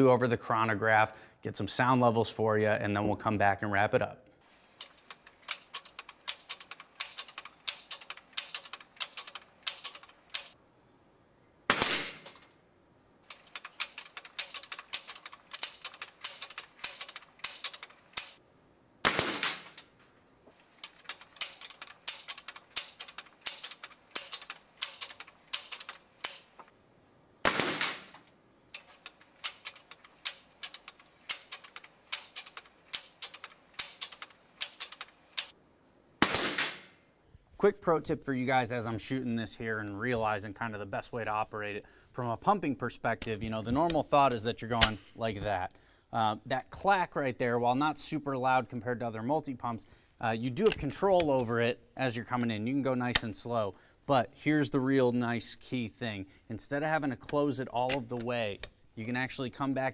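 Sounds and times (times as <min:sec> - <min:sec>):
air rifle pump lever clacks: 0:04.8 - 0:10.6, 0:13.2 - 0:18.4, 0:20.6 - 0:26.7, 0:28.8 - 0:35.5, 0:50.6 - 0:51.5, 0:57.3 - 0:58.8
air rifle shots: 0:11.7 - 0:12.5, 0:19.0 - 0:20.0, 0:27.4 - 0:28.3, 0:36.2 - 0:37.0.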